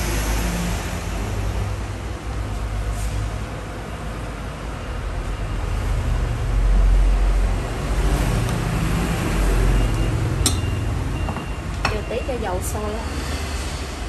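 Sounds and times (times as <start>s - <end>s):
induction cooktop humming: 9.8s - 13.2s.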